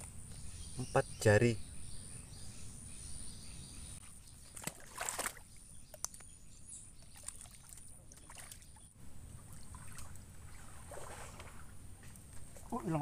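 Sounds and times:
water splashing and dripping: 4.4 - 6.2, 7.0 - 13.0.

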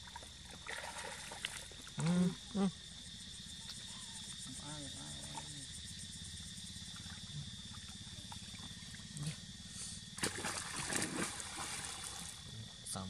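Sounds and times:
high insect buzz: 0.0 - 13.0
monkey splashing in shallow water: 0.1 - 2.0, 10.2 - 12.4.

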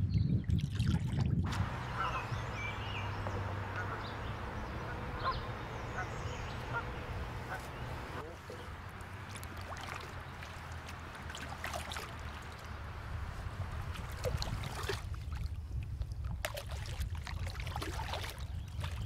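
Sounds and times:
paddle splashing water: 0.6 - 19.0
low steady rumble: 1.3 - 16.4.

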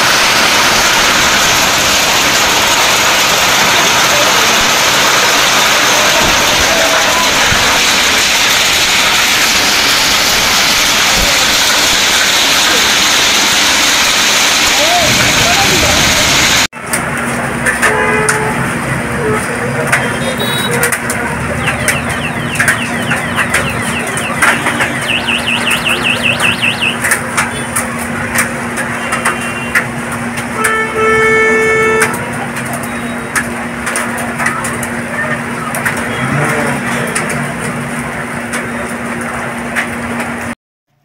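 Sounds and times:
heavy rain and hail falling: 0.0 - 40.6
vehicle horn honking: 17.8 - 21.0, 30.6 - 32.2.

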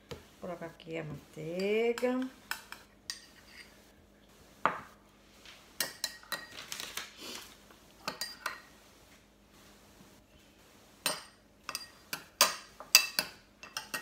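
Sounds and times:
utensils clinking against a dish: 5.8 - 6.6, 8.0 - 8.7, 11.0 - 14.0.

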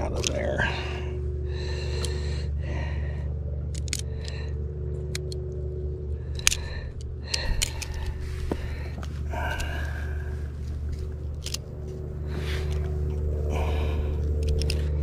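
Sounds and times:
steady low hum: 0.0 - 15.0
metal pliers clicking: 3.7 - 4.4, 5.0 - 5.5, 6.3 - 9.8, 10.8 - 11.9, 12.6 - 15.0.

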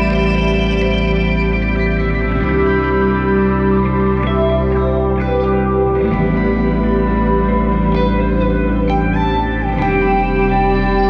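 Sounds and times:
background music sustained chords: 0.0 - 11.0.

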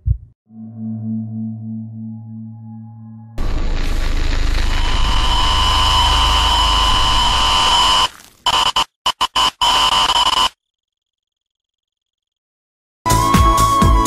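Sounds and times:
distorted static noise: 3.4 - 10.5.

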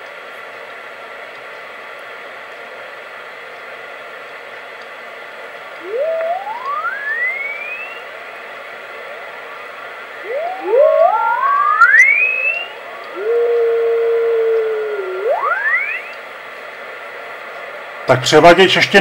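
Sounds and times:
whistling radio tones: 5.8 - 16.3.

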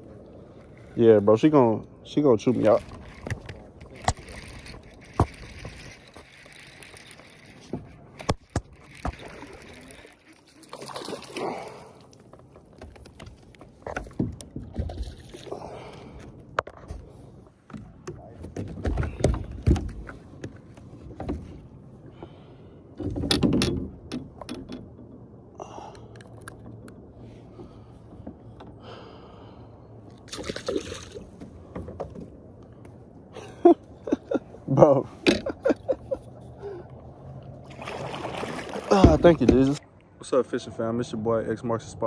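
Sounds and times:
paddle swishing in water: 37.3 - 39.8.

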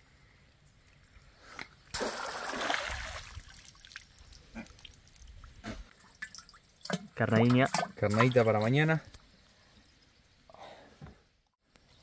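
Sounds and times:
water splashing: 1.9 - 8.8.

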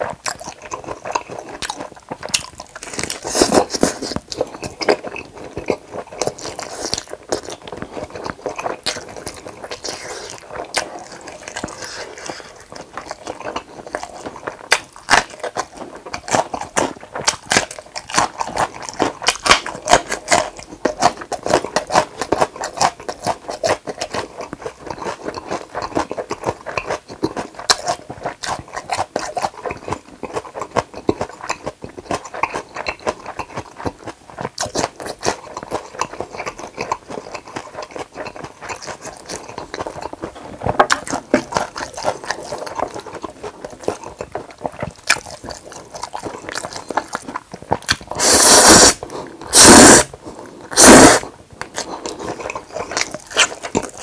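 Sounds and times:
person chewing wetly: 0.0 - 54.0.

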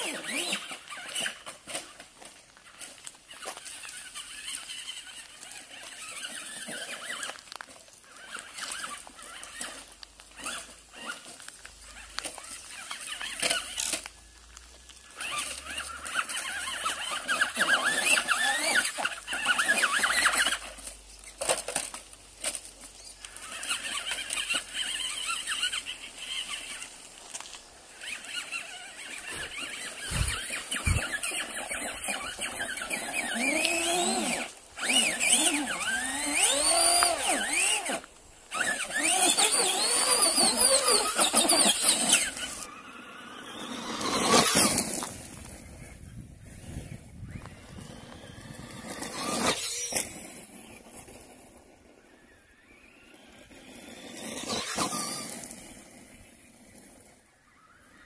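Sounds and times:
electric motor whining: 0.0 - 2.0, 15.1 - 51.2, 52.0 - 56.8
tyres crackling over stones: 0.2 - 42.7, 43.6 - 52.2.

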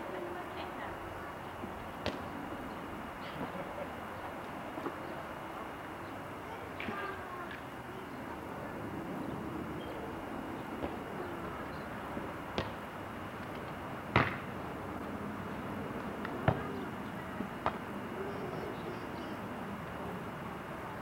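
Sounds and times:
steady background hiss: 0.0 - 21.0.

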